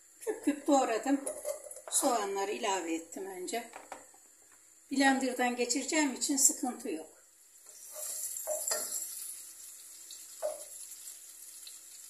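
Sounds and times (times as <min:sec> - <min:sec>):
onions sizzling in hot oil: 0:07.3 - 0:12.0.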